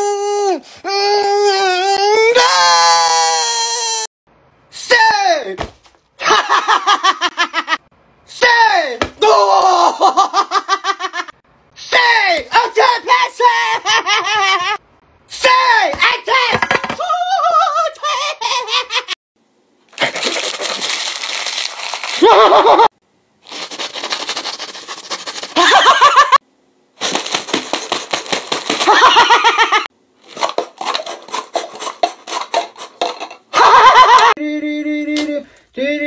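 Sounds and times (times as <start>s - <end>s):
man yelling: 4.7s - 5.7s, 8.3s - 10.1s, 11.8s - 14.1s, 15.3s - 18.7s.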